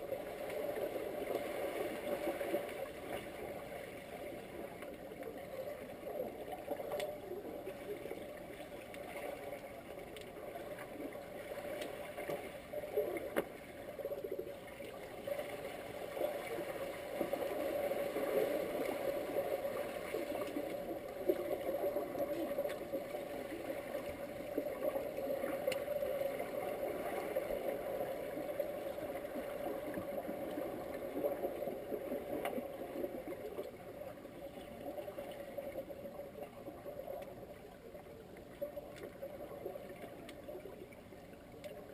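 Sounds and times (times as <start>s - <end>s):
faint underwater clicks: 0.0s - 41.9s
underwater rushing water: 0.0s - 41.9s.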